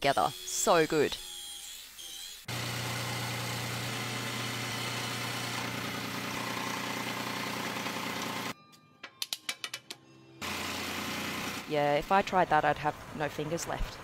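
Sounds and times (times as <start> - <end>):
scroll saw cutting wood: 0.0 - 8.6, 10.4 - 11.7.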